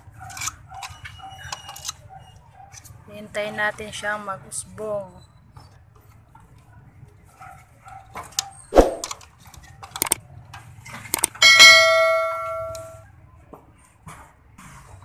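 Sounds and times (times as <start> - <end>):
sharp knocks and clicks: 9.8 - 10.2, 11.1 - 11.4
bright bell ding: 11.4 - 13.0.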